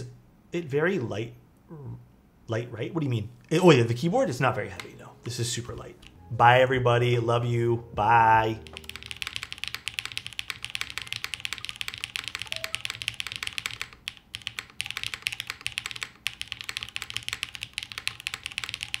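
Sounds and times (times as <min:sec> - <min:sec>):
mechanical keyboard key clacks: 0:08.6 - 0:19.0.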